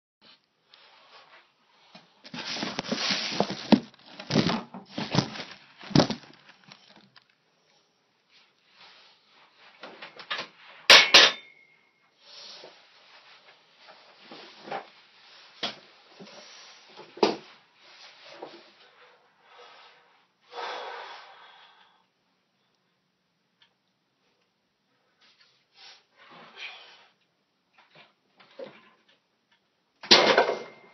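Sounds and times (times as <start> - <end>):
rustling and shuffling: 0.3 - 7.4, 12.5 - 19.2.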